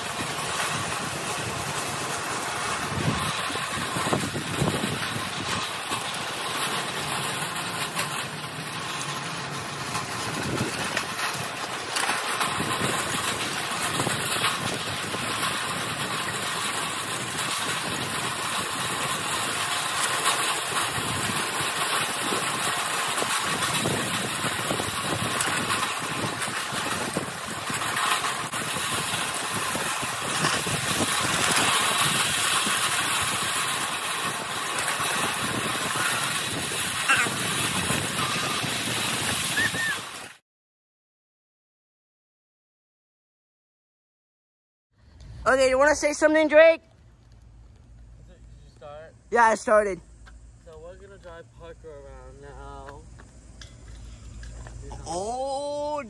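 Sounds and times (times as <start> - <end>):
wheelchair motor hum: 0.0 - 40.3
wheels rolling on pavement: 0.0 - 40.4, 45.0 - 56.0.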